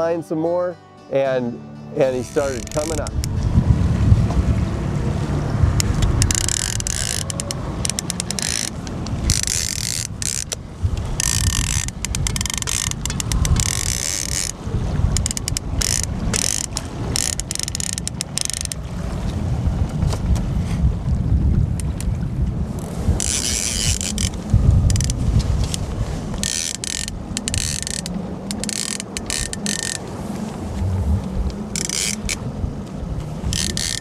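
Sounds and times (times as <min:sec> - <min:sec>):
low rumble of wind and water: 0:00.0 - 0:34.0
fishing reel ratcheting: 0:02.2 - 0:03.3, 0:05.8 - 0:14.6, 0:15.2 - 0:18.8, 0:23.2 - 0:25.8, 0:26.4 - 0:30.0, 0:31.7 - 0:32.4, 0:33.5 - 0:34.0.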